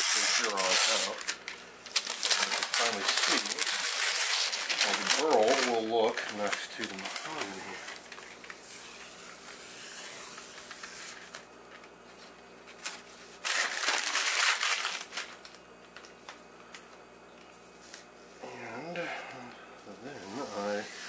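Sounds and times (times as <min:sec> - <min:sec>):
masking tape peeling and tearing: 0:00.0 - 0:11.4, 0:12.8 - 0:15.4.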